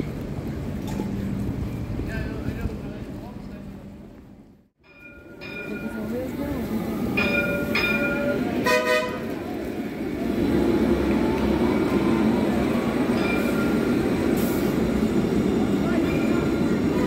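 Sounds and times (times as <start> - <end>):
tram rumbling past: 0.0 - 17.0
tram horn toots: 7.3 - 9.6.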